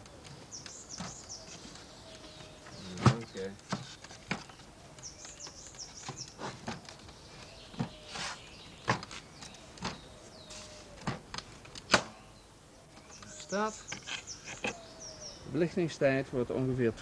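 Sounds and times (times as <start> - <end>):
birds chirping: 0.0 - 17.0
wooden knocks and clicks: 2.4 - 8.0.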